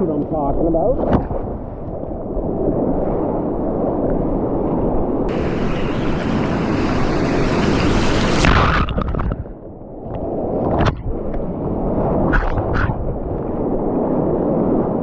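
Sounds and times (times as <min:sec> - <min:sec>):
whitewater rapids rushing: 0:05.3 - 0:08.5.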